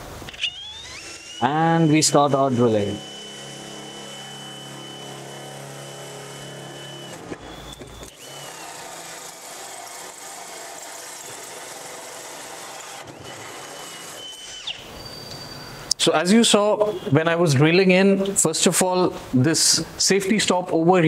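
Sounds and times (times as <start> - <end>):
drill hole saw cutting sheet metal: 0.0 - 15.9.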